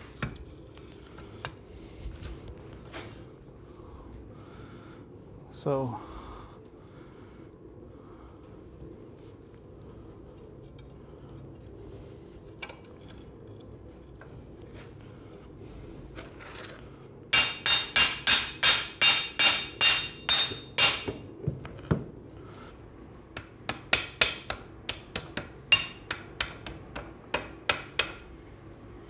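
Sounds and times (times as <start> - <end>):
hammer tapping on metal: 17.4 - 21.2, 23.4 - 28.3.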